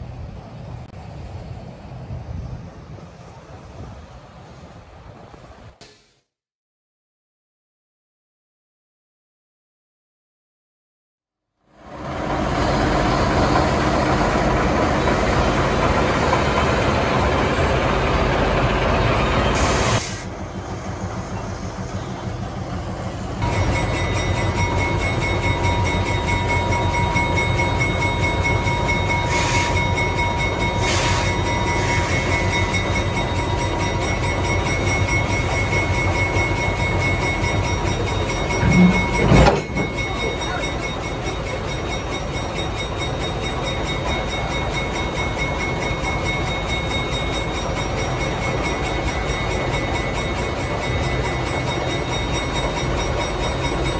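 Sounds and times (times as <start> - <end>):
diesel locomotive engine running: 11.7 - 53.9.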